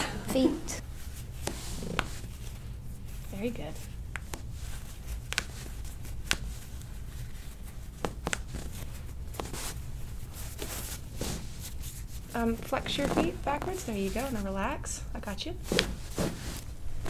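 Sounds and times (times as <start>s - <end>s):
low steady hum: 0.0s - 17.0s
paper towel crinkling and rustling: 15.6s - 17.0s.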